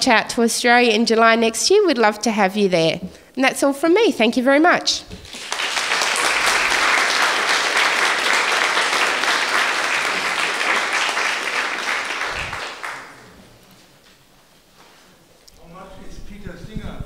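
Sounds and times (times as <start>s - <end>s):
audience applauding: 5.2s - 13.6s.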